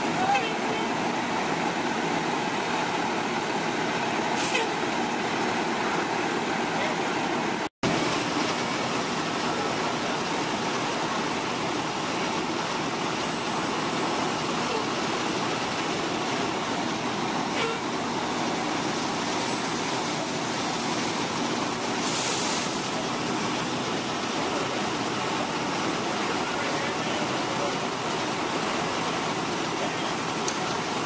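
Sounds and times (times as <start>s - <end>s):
diesel engines rumbling: 0.0s - 31.0s.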